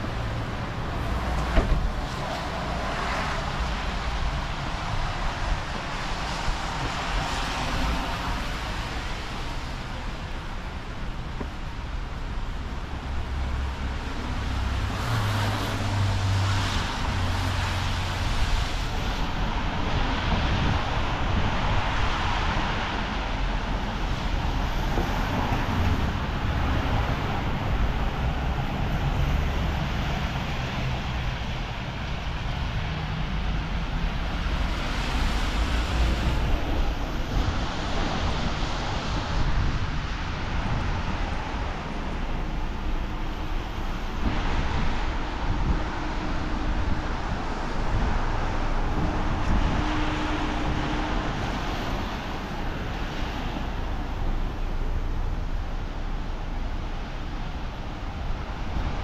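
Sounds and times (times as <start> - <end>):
cars passing on a street: 0.0 - 59.0.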